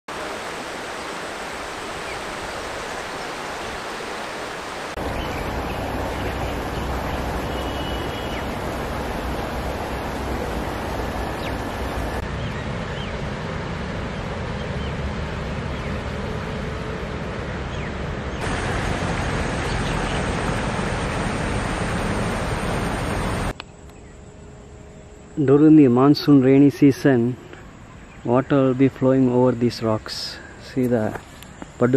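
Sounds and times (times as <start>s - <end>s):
water rushing over rocks: 0.1s - 12.2s, 18.4s - 23.5s.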